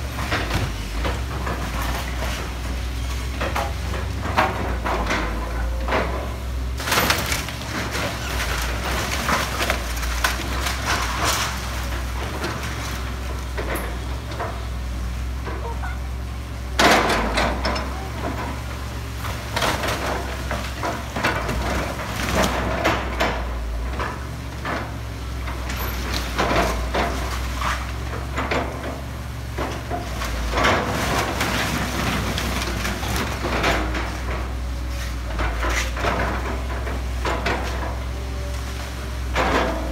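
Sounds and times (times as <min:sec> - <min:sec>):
building debris cracking and crashing: 0:00.0 - 0:14.6, 0:16.8 - 0:24.8, 0:29.6 - 0:34.6
excavator diesel engine running: 0:00.0 - 0:39.9.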